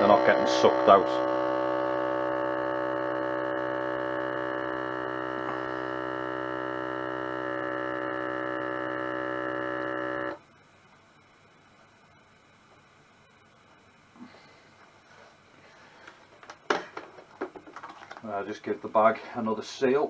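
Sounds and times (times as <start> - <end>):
vacuum sealer pump humming: 0.0 - 10.5.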